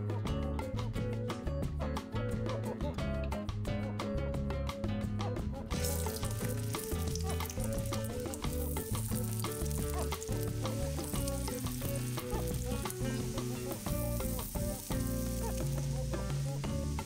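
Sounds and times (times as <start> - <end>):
background music: 0.0 - 17.0
patties sizzling in hot oil: 5.7 - 17.0.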